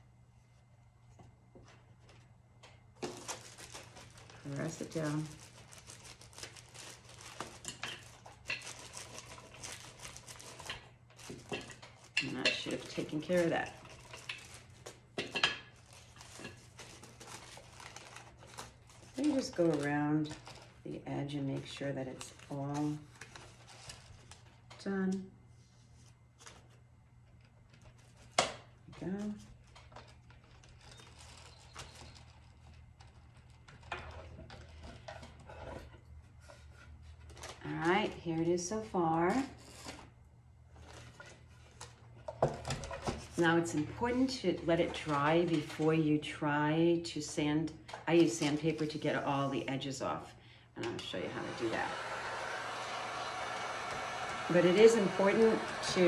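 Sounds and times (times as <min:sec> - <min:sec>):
low steady hum: 0:00.0 - 0:52.0
paper rustling: 0:03.0 - 0:15.0, 0:15.7 - 0:20.8.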